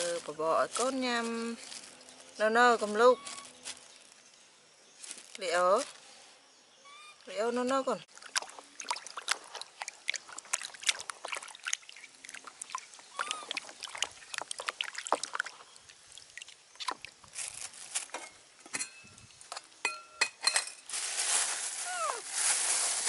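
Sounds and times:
water splashing in plastic basin: 0:08.1 - 0:17.2
metal pot clinking: 0:18.2 - 0:20.8.

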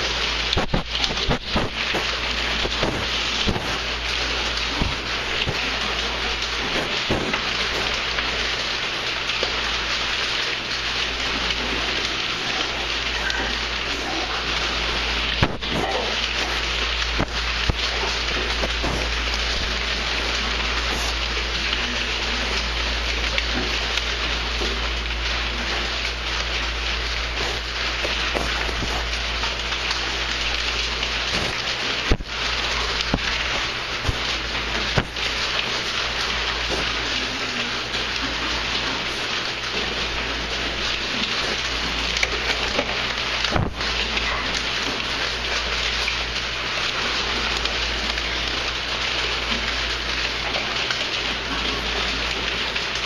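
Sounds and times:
piglets sniffing and snuffling: 0:11.2 - 0:22.7, 0:27.0 - 0:30.4
piglets sniffing: 0:20.4 - 0:22.4.

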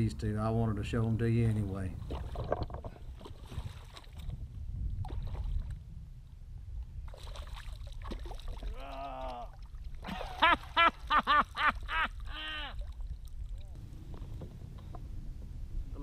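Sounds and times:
wind rumbling on microphone: 0:00.0 - 0:10.4, 0:11.7 - 0:16.0
fish thrashing in water: 0:07.1 - 0:10.7.

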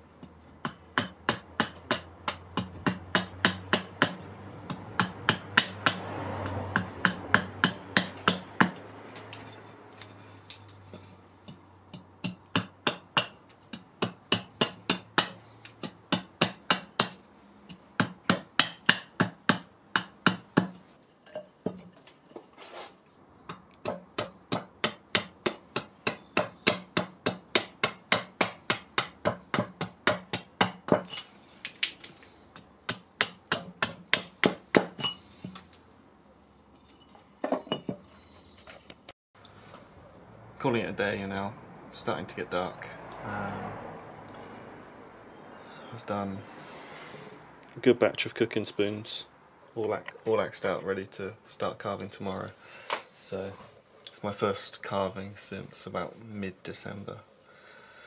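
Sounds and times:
axe chopping wood: 0:00.6 - 0:08.8, 0:11.0 - 0:20.8, 0:23.5 - 0:31.2, 0:32.6 - 0:35.7.

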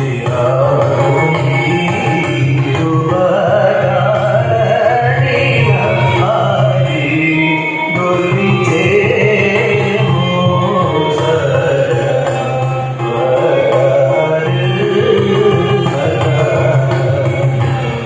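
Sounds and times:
man singing: 0:00.0 - 0:18.0
violin accompaniment: 0:00.0 - 0:18.0.

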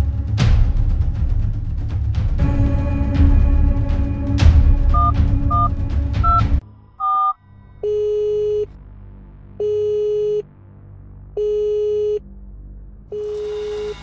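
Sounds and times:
telephone line beep: 0:05.0 - 0:06.4, 0:07.0 - 0:08.7.

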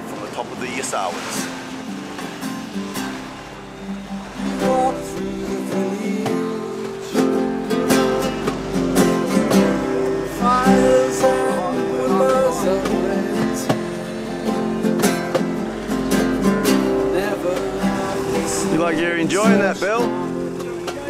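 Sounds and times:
strummed acoustic guitar: 0:00.0 - 0:21.0.

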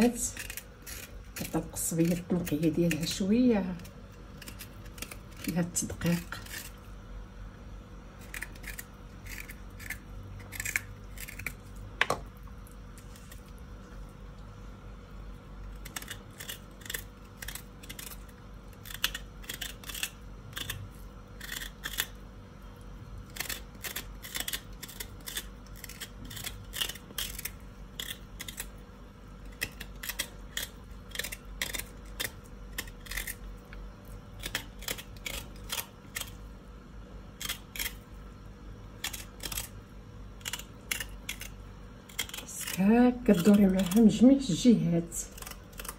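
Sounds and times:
knife scraping vegetable skin: 0:00.0 - 0:06.9, 0:08.2 - 0:12.2, 0:15.7 - 0:22.2, 0:23.2 - 0:28.8, 0:29.4 - 0:33.5, 0:34.2 - 0:36.4, 0:37.4 - 0:38.1, 0:39.0 - 0:39.8, 0:40.4 - 0:45.9
steady low hum: 0:00.0 - 0:45.9.

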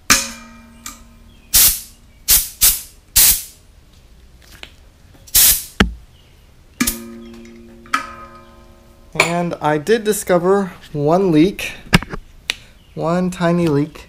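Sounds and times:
compressed air hissing: 0:01.5 - 0:03.6, 0:05.3 - 0:05.8.

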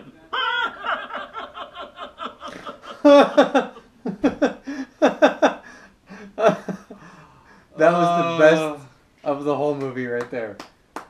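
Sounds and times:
men laughing: 0:00.3 - 0:08.6.

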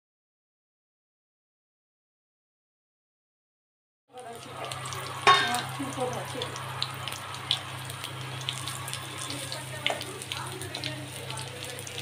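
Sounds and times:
deep-frying sizzling with pops: 0:04.1 - 0:12.0.

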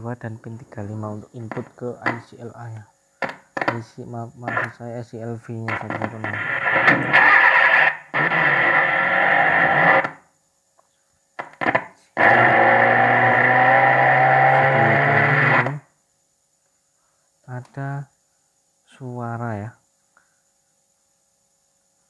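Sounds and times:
electrical hum: 0:00.0 - 0:10.2, 0:11.4 - 0:15.8
distorted audio from tv loudspeaker: 0:00.4 - 0:10.2, 0:11.4 - 0:15.8.

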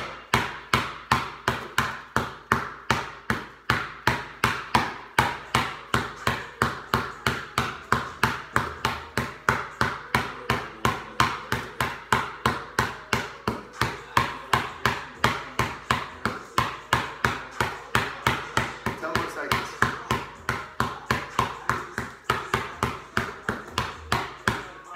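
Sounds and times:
basketball bouncing on concrete: 0:00.0 - 0:24.9.

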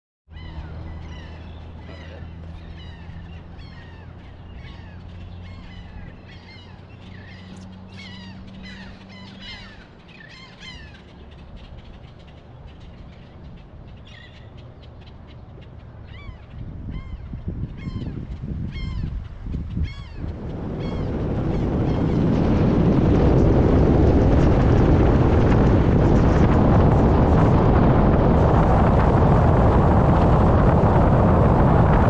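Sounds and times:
birds calling and chattering: 0:00.3 - 0:23.4
wind buffeting microphone: 0:00.3 - 0:32.0.

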